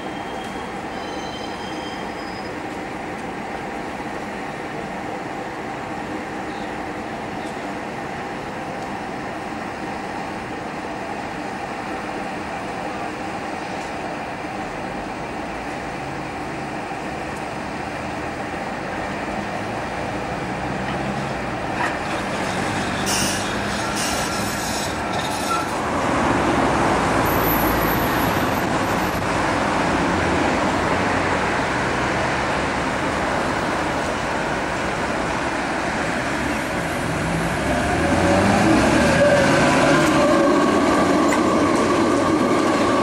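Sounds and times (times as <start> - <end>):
tram wheel squeal: 0.0 - 2.8, 21.0 - 25.9, 27.1 - 29.2, 38.0 - 43.0
road traffic: 0.0 - 43.0
streetcars rumbling: 0.0 - 43.0.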